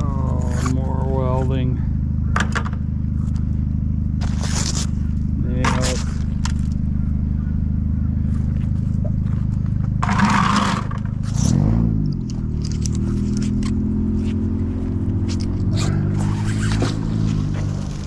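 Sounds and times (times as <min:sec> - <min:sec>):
vehicle engine running: 0:00.0 - 0:18.0
rope scraping against concrete: 0:04.2 - 0:05.0, 0:15.2 - 0:17.6.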